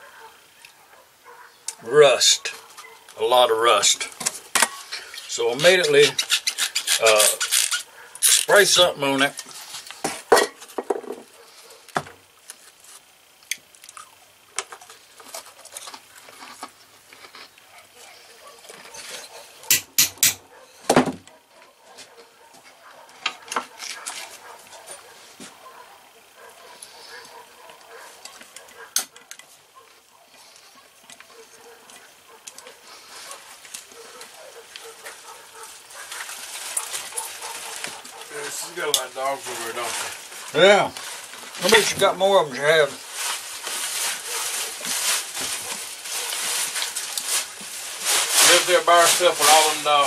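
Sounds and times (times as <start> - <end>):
distant dogs barking: 0.0 - 9.3, 11.0 - 12.4, 17.2 - 50.0
hand tool clicking on metal: 19.7 - 20.4.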